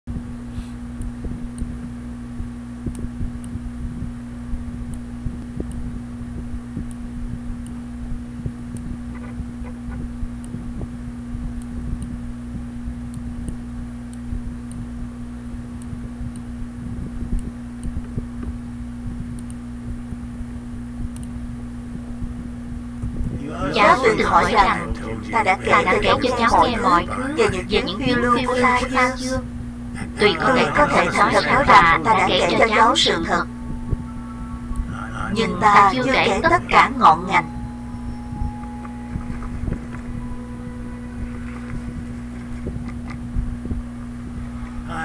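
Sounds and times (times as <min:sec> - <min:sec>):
low-pitched hum: 0:00.1 - 0:45.0
faint ticks: 0:08.4 - 0:14.9, 0:15.6 - 0:19.6, 0:21.0 - 0:22.4
low rumble: 0:33.1 - 0:35.6, 0:36.4 - 0:45.0.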